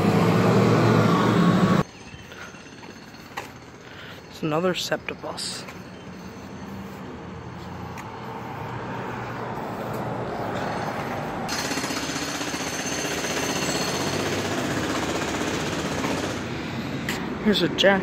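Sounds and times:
mechanical rattling and hammering: 11.5s - 16.5s.

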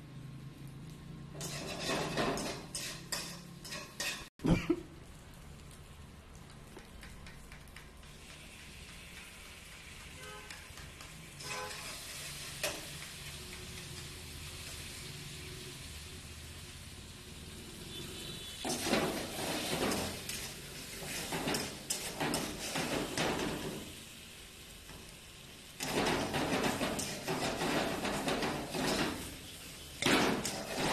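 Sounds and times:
tongs scraping and clattering on pan: 1.3s - 4.3s, 7.0s - 14.9s, 18.6s - 24.0s, 25.8s - 30.9s
pasta sizzling in frying pan: 5.0s - 30.9s.

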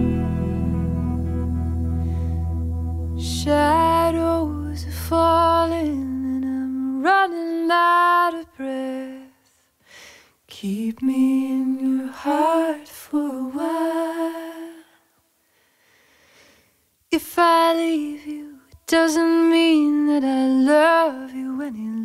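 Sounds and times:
low drone: 0.0s - 5.7s
solo vocal melody: 0.0s - 9.4s, 10.5s - 15.0s, 17.2s - 22.0s.

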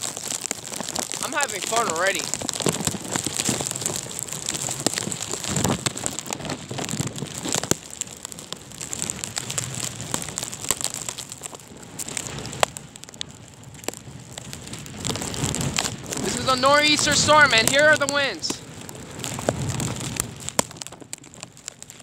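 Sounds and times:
wind hiss: 0.0s - 7.8s, 14.0s - 20.6s
snow and sleet hitting microphone: 0.0s - 22.0s.

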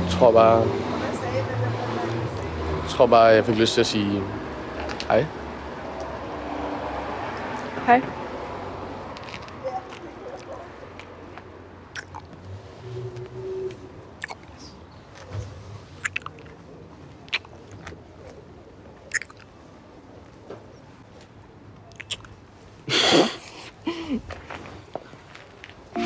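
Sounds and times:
wet lip smacks kissing: 11.9s - 12.3s, 14.2s - 14.5s, 16.0s - 16.6s, 17.3s - 17.6s, 19.1s - 19.5s, 21.9s - 22.4s.

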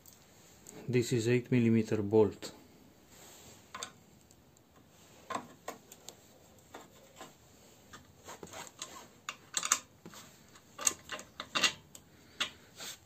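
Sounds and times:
hand tools clicking and tapping: 4.8s - 12.6s.

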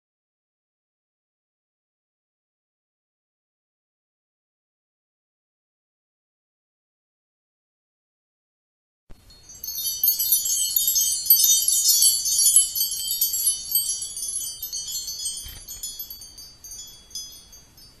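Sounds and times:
high-pitched chimes tinkling: 9.2s - 18.0s.

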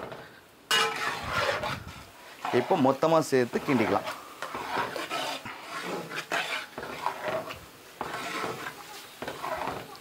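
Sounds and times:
spatula scraping and knocking pot: 0.0s - 10.0s.

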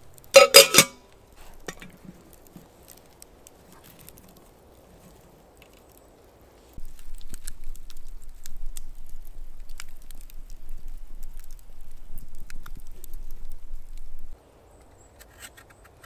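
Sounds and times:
sharp crackles and pops: 0.0s - 16.0s
quiet rustling: 0.4s - 16.0s.

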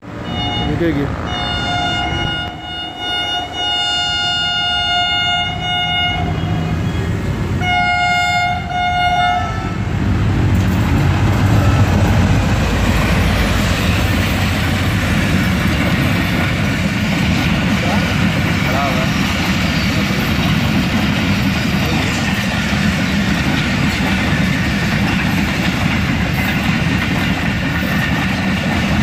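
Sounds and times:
train engine and wheel rumble: 0.0s - 29.0s
locomotive horn blasts: 0.2s - 6.9s, 7.6s - 10.0s.

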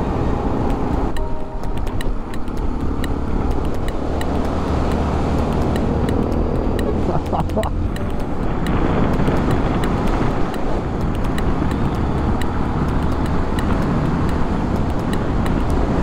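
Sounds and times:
motorcycle engine running: 0.0s - 16.0s
wind and road noise: 0.0s - 16.0s.

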